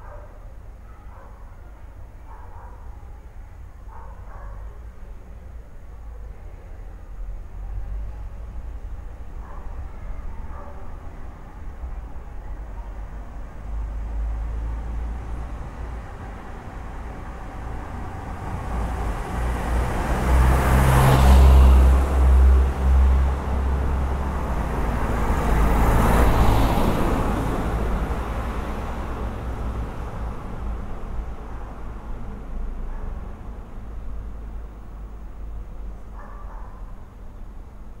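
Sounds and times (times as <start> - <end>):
low street rumble: 0.0 - 38.0
cars passing: 7.0 - 38.0.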